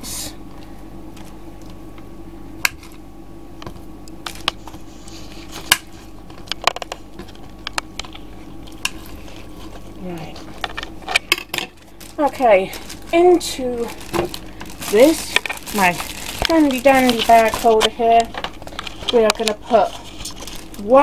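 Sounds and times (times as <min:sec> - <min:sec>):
steady low hum: 0:00.0 - 0:21.0.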